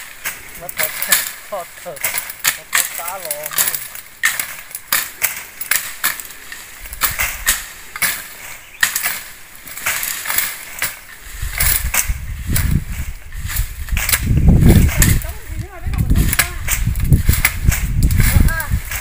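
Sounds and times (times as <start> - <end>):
blades chopping woody stems: 0.0 - 12.8
rustling branches and leaves: 0.0 - 19.0.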